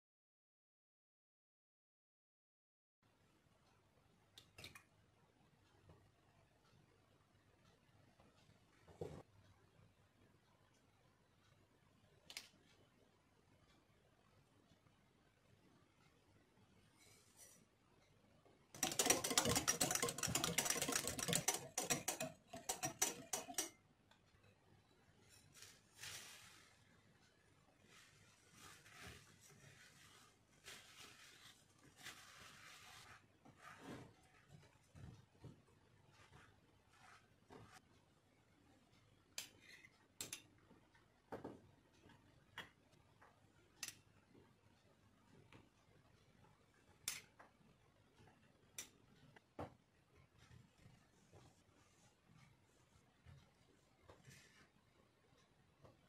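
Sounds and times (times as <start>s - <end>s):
metal spoons clicking together: 18.8s - 23.7s
whisk beating eggs in glass bowl: 18.8s - 23.8s.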